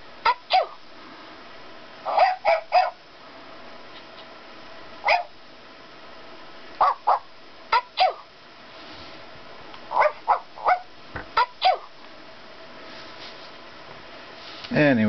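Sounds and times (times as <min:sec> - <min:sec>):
toy puppy barks: 0:00.2 - 0:00.8, 0:02.1 - 0:03.0, 0:05.0 - 0:05.3, 0:06.8 - 0:08.3, 0:09.9 - 0:11.9.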